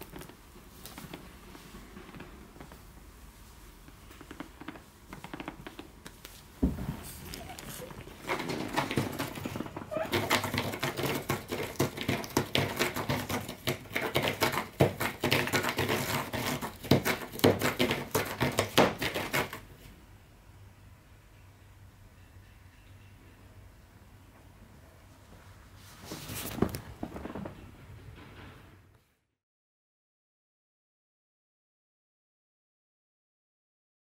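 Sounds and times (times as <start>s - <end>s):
thump: 6.6s - 7.1s
cat scratching cardboard: 7.0s - 19.7s.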